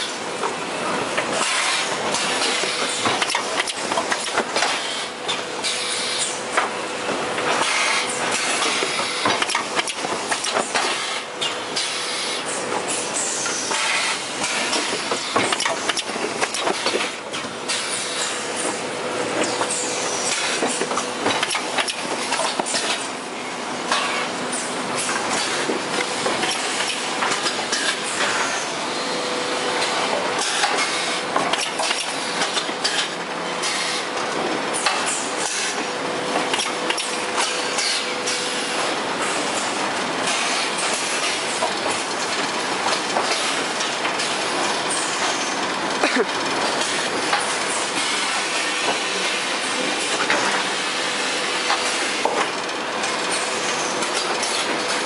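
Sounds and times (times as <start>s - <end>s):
packaging machinery clattering: 0.0s - 23.2s, 23.8s - 28.6s, 29.7s - 55.0s
machine clicks and knocks: 1.2s - 5.8s, 6.5s - 11.9s, 13.7s - 17.8s, 19.4s - 23.1s, 29.8s - 35.8s, 36.4s - 38.4s.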